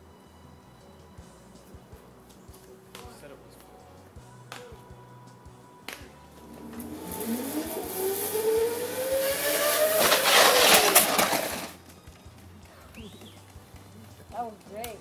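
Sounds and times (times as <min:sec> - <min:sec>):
loud rushing noise: 0:06.4 - 0:11.8
zipline pulley whine: 0:06.4 - 0:11.8.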